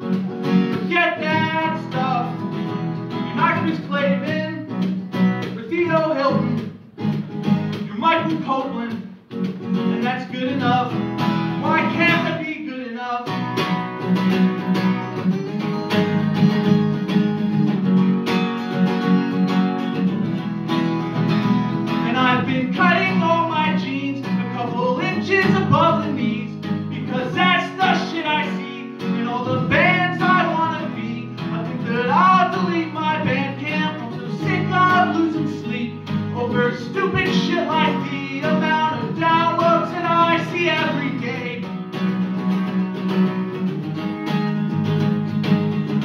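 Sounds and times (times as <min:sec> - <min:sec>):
strummed acoustic guitar: 0:00.0 - 0:46.0
man singing: 0:00.7 - 0:06.8, 0:07.8 - 0:09.2, 0:09.8 - 0:13.6, 0:21.9 - 0:41.8.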